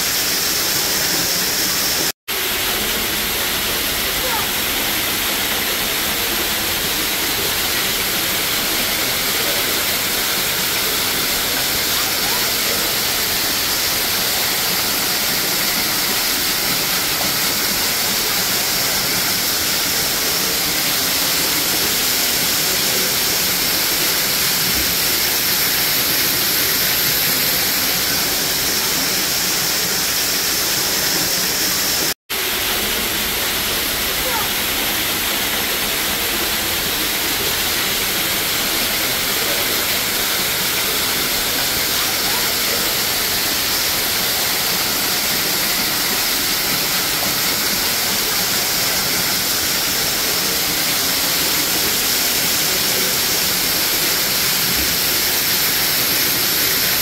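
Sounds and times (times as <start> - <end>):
waterfall pouring: 0.0 - 57.0.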